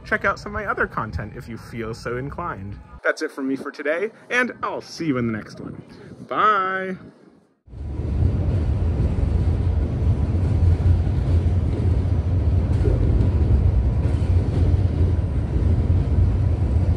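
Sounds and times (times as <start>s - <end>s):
subway train rumbling: 0.0s - 3.0s, 7.0s - 16.9s.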